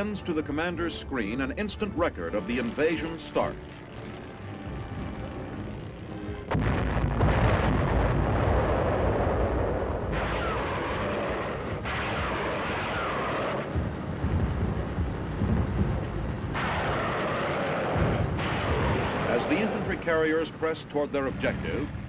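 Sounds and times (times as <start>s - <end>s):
explosions and artillery fire: 6.5s - 22.0s.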